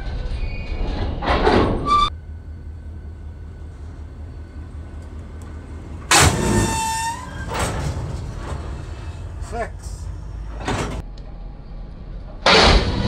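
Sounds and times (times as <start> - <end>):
loud impact bang: 2.1 - 11.0
low steady rumble: 2.1 - 12.4.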